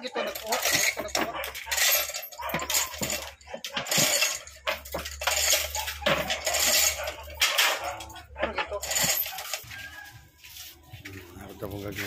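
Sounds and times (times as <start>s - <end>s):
chain links rattling and clinking: 0.0s - 10.1s.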